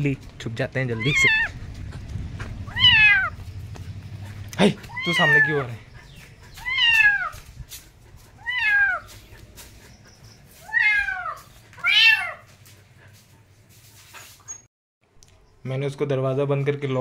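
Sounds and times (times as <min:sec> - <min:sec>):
cat meowing: 0:01.0 - 0:01.6, 0:02.6 - 0:03.4, 0:04.9 - 0:05.7, 0:06.6 - 0:07.4, 0:08.4 - 0:09.2, 0:10.6 - 0:12.5.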